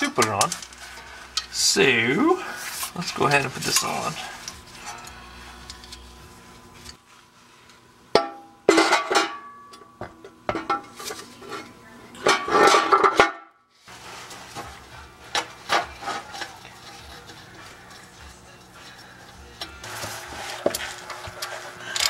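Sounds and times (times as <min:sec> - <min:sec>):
metal parts clinking and rattling: 0:20.6 - 0:22.0.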